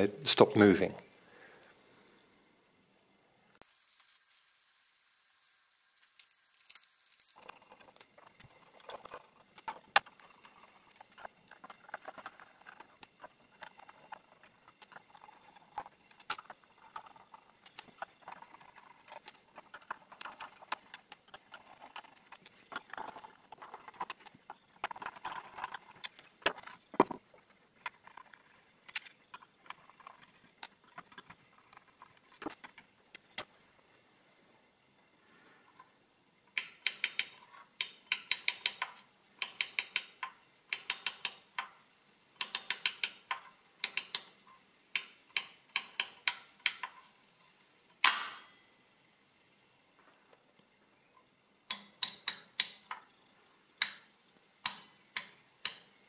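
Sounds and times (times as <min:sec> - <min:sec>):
light metallic clicks and knocks: 0:36.5 - 0:41.8, 0:42.4 - 0:47.0, 0:51.7 - 0:53.1, 0:53.8 - 0:56.0
rapid ratcheting clicks of wheels: 0:36.6 - 0:41.8, 0:42.4 - 0:44.4, 0:45.0 - 0:47.0, 0:51.7 - 0:53.0, 0:53.8 - 0:56.0.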